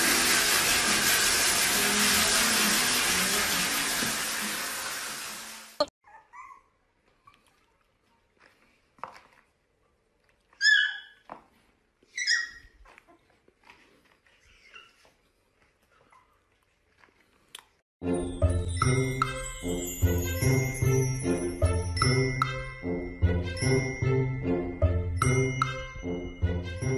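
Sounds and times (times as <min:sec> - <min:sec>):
puppy yipping: 0:06.0 - 0:07.5, 0:10.5 - 0:11.3, 0:12.1 - 0:13.3, 0:14.3 - 0:15.2
music with jingle bells: 0:18.0 - 0:26.9.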